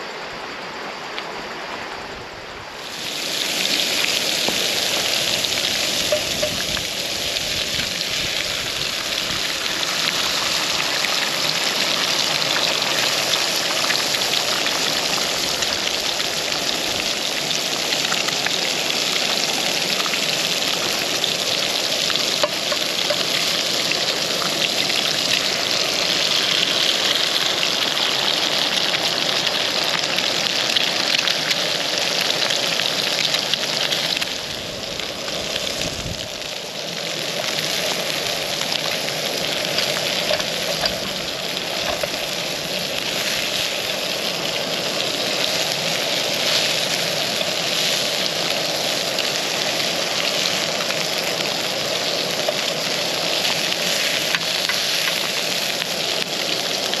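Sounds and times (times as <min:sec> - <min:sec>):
food sizzling in a frying pan: 0:02.8 - 0:57.0.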